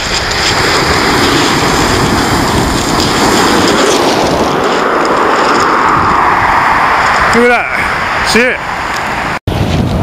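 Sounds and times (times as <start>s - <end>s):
waves breaking on shingle: 0.0s - 7.5s
wind rumbling on microphone: 0.0s - 10.0s.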